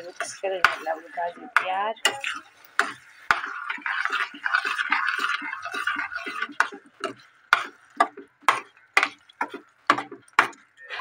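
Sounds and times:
spoon knocking against pan: 0:00.0 - 0:03.6, 0:06.6 - 0:10.6
spoon scraping steel pan: 0:00.0 - 0:10.1.

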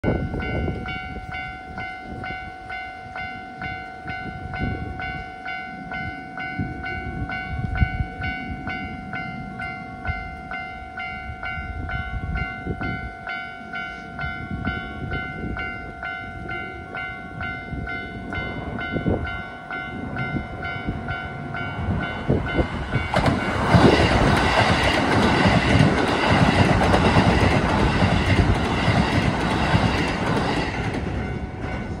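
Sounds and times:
train wheels rushing on rails: 0:00.1 - 0:32.0.

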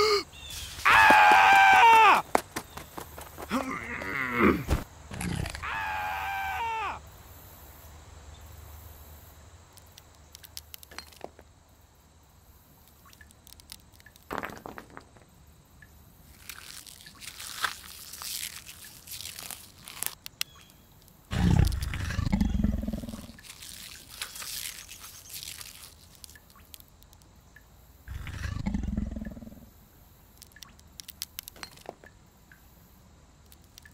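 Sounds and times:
cartoon falling cry: 0:00.8 - 0:02.2, 0:05.4 - 0:07.0
crunching clicks: 0:09.7 - 0:11.3, 0:12.8 - 0:15.3, 0:16.3 - 0:27.4, 0:30.3 - 0:32.2, 0:33.4 - 0:33.9
deep rumbling growls: 0:21.3 - 0:23.4, 0:28.1 - 0:29.7.

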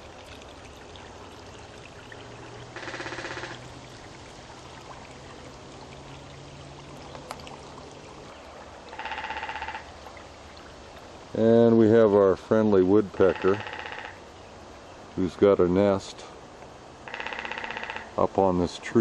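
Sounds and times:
water pouring over weir: 0:00.0 - 0:11.4.

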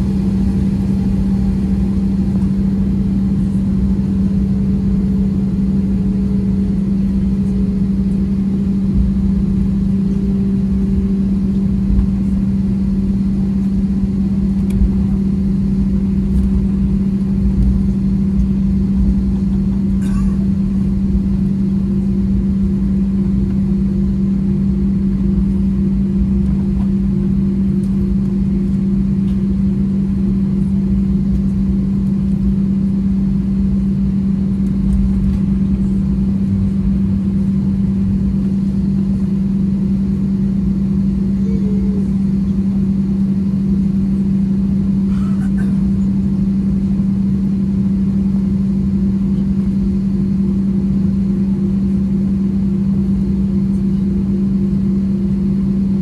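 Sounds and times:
jet engines idling in cabin: 0:00.0 - 0:56.0
low rumble: 0:00.0 - 0:56.0.

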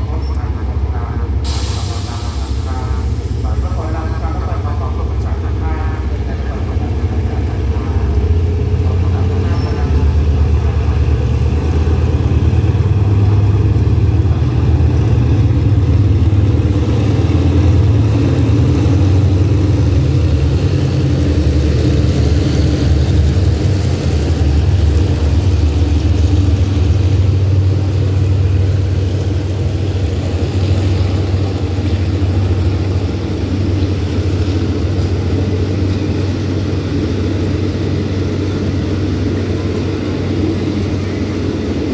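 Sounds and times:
locomotive engine low drone: 0:00.0 - 0:41.9
train wheels hissing on rails: 0:01.2 - 0:05.7.

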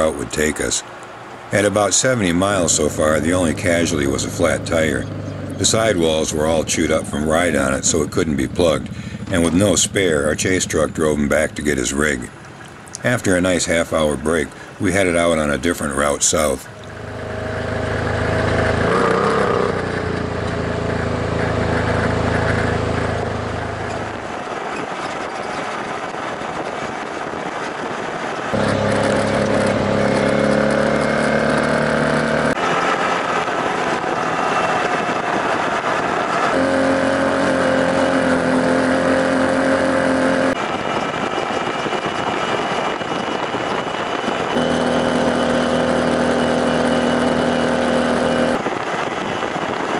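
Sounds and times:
tire and road noise: 0:00.0 - 0:49.9
off-road vehicle engine running: 0:01.5 - 0:49.9.

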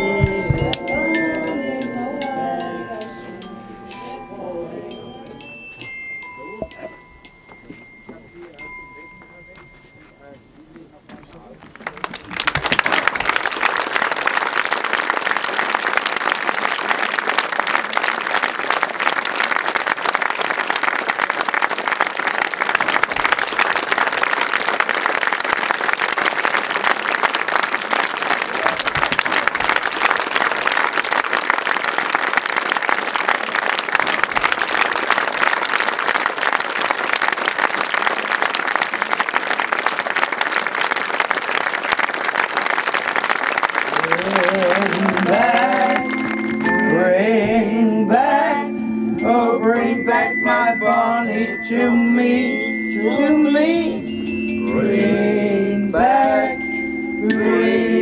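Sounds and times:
audience applauding: 0:11.8 - 0:46.9.

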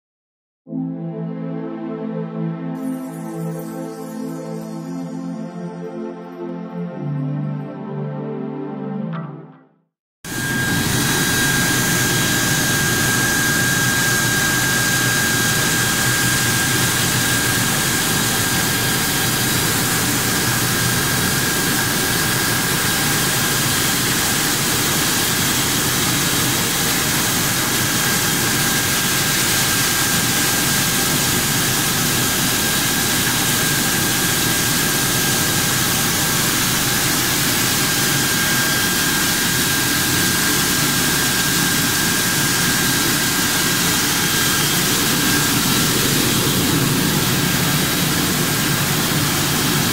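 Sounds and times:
grinder mill running with whine: 0:10.3 - 0:49.9.

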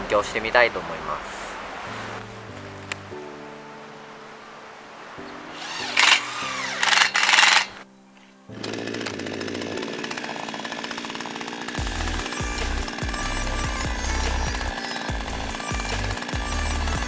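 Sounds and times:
chainsaw ripping a log: 0:05.6 - 0:07.8, 0:08.5 - 0:17.0
cordless drill driving screw: 0:05.6 - 0:07.8.

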